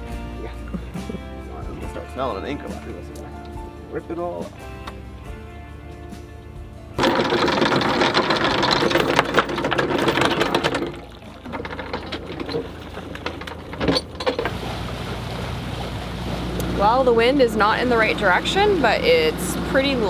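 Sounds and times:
anchor chain rattling: 7.0s - 14.6s
water splash: 10.0s - 18.9s.

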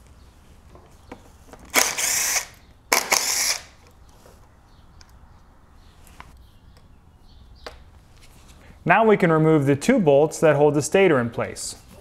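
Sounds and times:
cordless power driver bursts: 1.7s - 3.8s.

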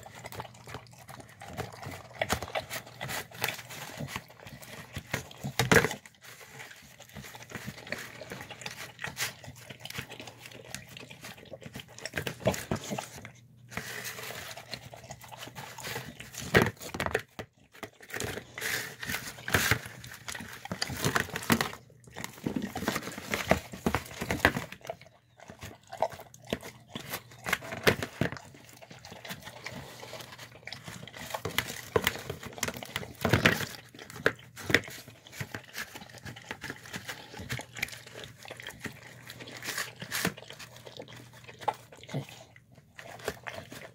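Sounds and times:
dog chewing and lapping: 0.0s - 43.9s
muzzle scraping plastic tub: 1.4s - 28.6s.

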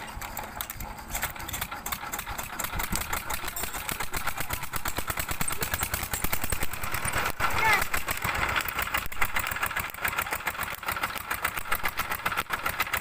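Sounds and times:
diesel engine chugging: 0.0s - 13.0s.

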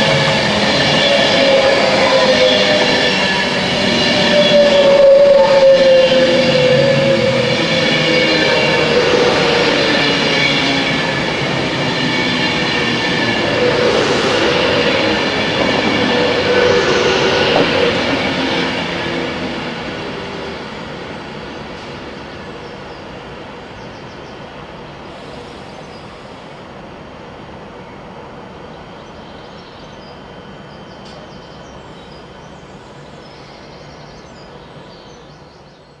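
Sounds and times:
electric train passing at speed: 0.0s - 35.8s.

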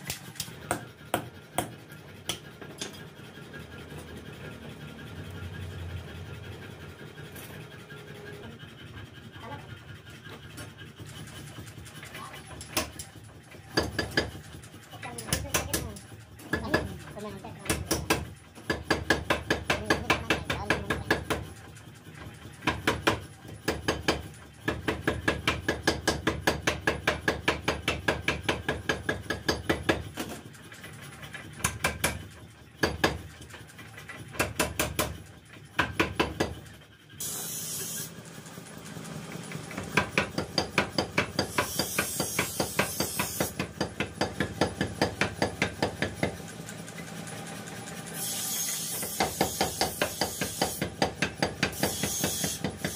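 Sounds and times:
power hammer pounding hot steel: 0.0s - 3.1s, 10.9s - 30.5s, 31.4s - 33.5s, 34.1s - 37.4s, 38.6s - 52.9s.

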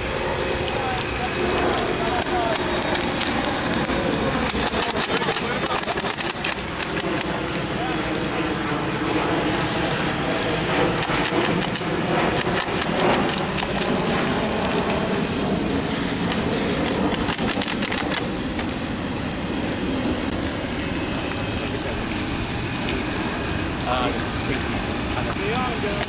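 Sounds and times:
steady hiss: 0.7s - 8.7s, 9.4s - 10.1s, 11.0s - 26.0s
rapid clicking of bb shots: 2.6s - 7.4s, 11.0s - 14.5s, 16.2s - 18.7s.

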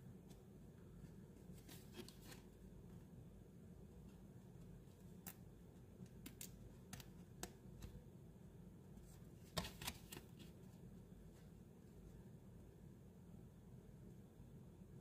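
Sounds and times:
trading card clicks and rustles: 9.4s - 10.5s.

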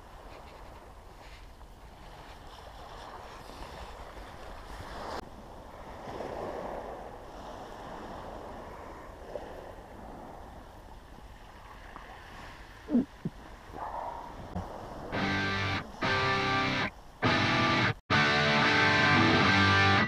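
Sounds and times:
waves on a shingle beach: 0.0s - 17.7s
wind noise on microphone: 12.1s - 16.2s.

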